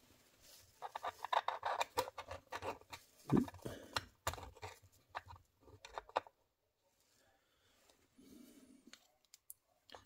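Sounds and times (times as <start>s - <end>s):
light clicks taps and scrapes: 0.8s - 6.4s.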